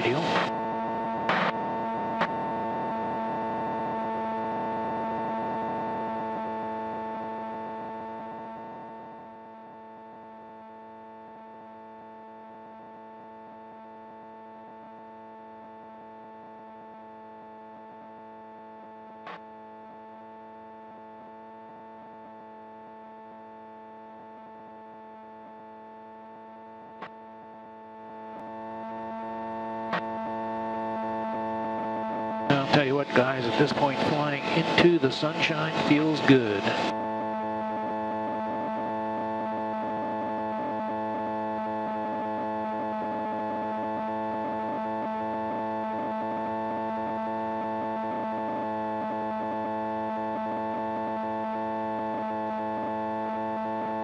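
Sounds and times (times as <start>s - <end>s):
aircraft engine and propeller drone: 32.2s - 39.4s.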